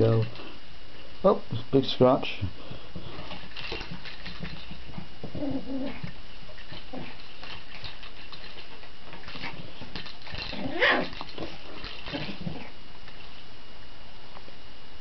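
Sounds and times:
puppy scratching at post: 0:03.0 - 0:13.3.

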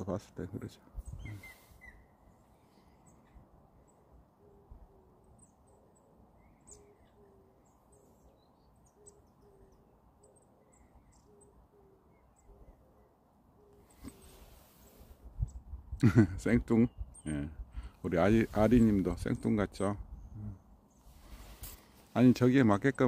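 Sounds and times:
distant bird hooting: 0:01.1 - 0:15.1.

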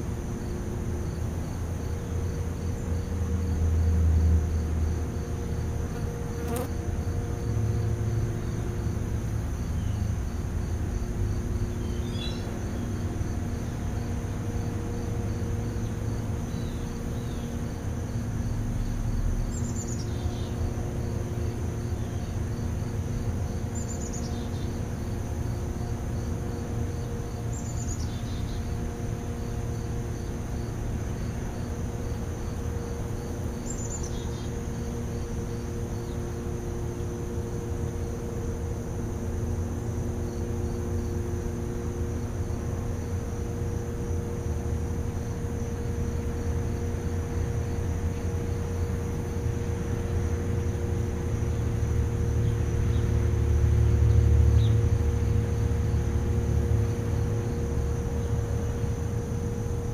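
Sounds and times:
insects buzzing and chirping: 0:00.0 - 0:59.9
low hum: 0:00.0 - 0:59.9.

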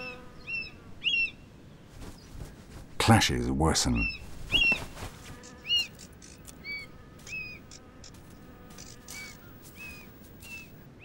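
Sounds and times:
birds calling: 0:00.0 - 0:11.0
wings flapping: 0:01.9 - 0:03.0, 0:04.1 - 0:10.8.

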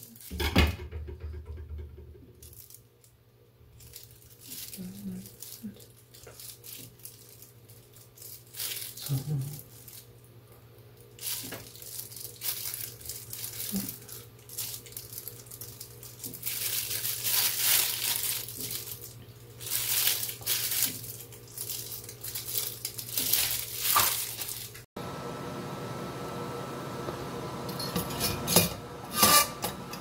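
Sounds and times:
plastic gloves crinkling: 0:00.0 - 0:00.4, 0:02.3 - 0:24.9.

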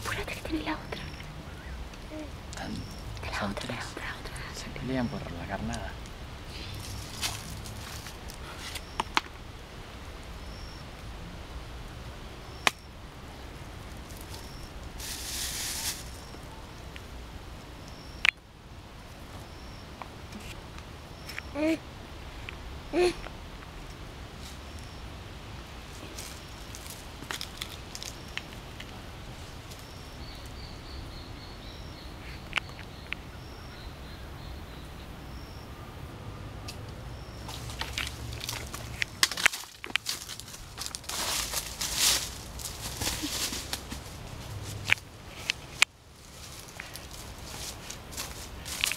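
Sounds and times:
plastic bag rustling: 0:15.0 - 0:16.4, 0:37.5 - 0:44.9.

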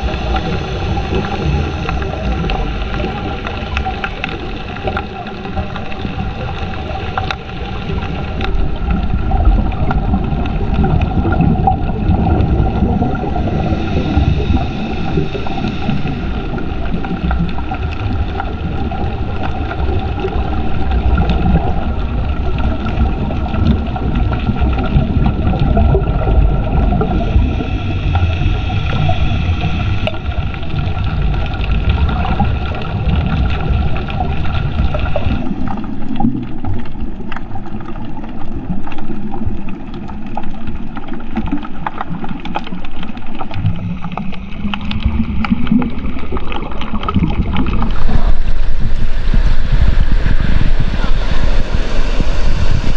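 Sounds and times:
underwater boat motor hum: 0:00.0 - 0:52.9
low tone rising in pitch: 0:47.8 - 0:52.9.

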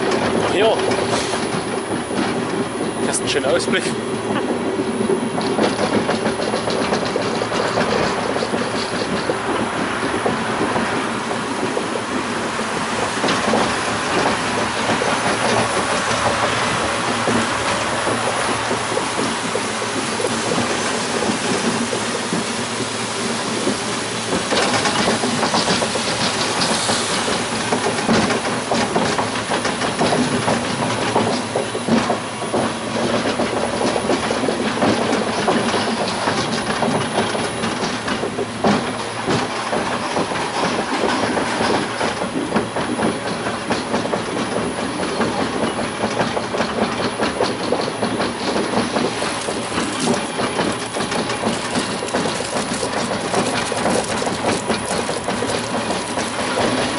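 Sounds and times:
monorail wheels rumbling on track: 0:00.0 - 0:56.9.

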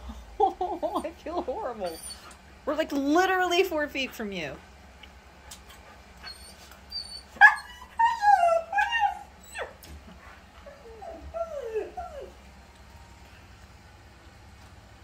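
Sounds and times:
dog whining and whimpering: 0:01.8 - 0:02.4, 0:06.2 - 0:12.4.

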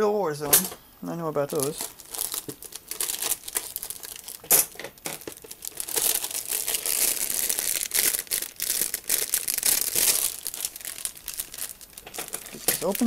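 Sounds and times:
plastic bag crinkling: 0:01.4 - 0:13.0.

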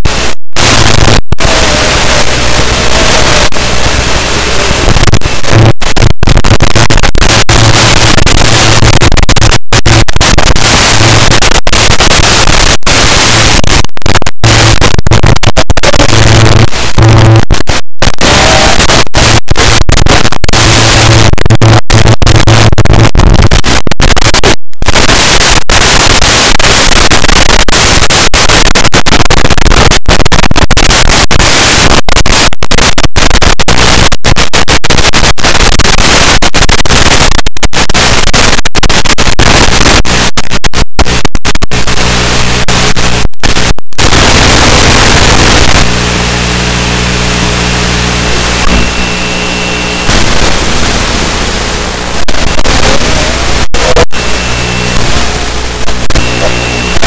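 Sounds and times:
loud static hiss: 0:00.0 - 0:57.0
low buzz: 0:14.3 - 0:23.8, 0:45.4 - 0:57.0.

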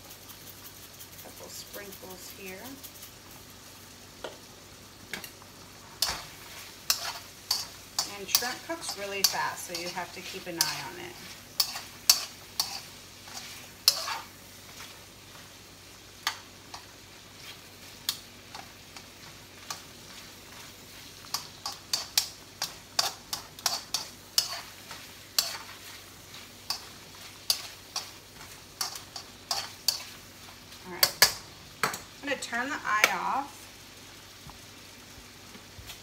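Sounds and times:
shrimp sizzling in butter: 0:00.0 - 0:36.0
metal tongs clicking on pan: 0:06.9 - 0:11.0, 0:11.6 - 0:14.2, 0:18.0 - 0:18.7, 0:21.3 - 0:25.7, 0:26.7 - 0:26.9, 0:27.5 - 0:30.1, 0:31.0 - 0:32.1.

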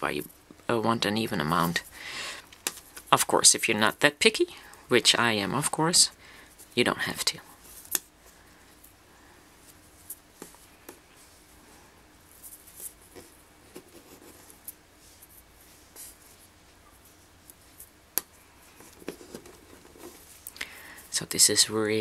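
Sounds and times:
cord rustling and scraping: 0:09.6 - 0:21.4.

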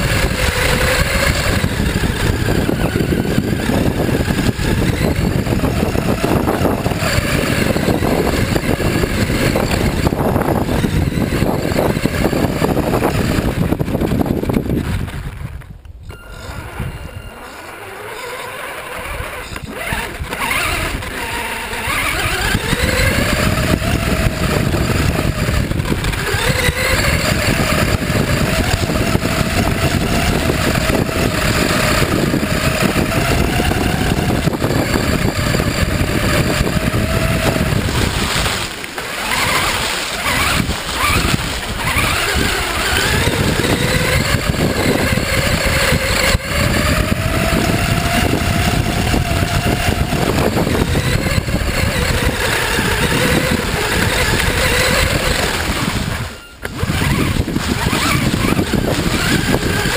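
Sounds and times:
rc car motor whine: 0:00.0 - 0:59.9
tyres rumbling on grass: 0:16.4 - 0:59.9.

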